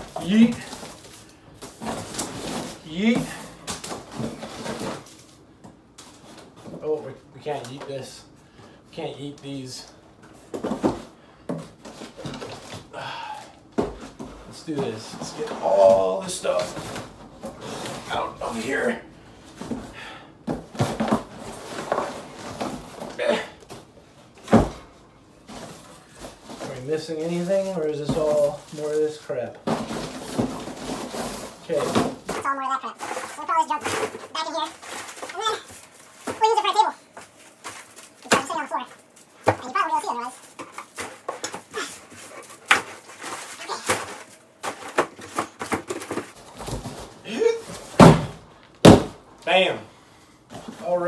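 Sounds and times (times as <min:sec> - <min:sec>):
cardboard rustling and scraping: 0:00.0 - 0:06.9, 0:13.8 - 0:19.9, 0:20.6 - 0:23.2, 0:25.4 - 0:48.2.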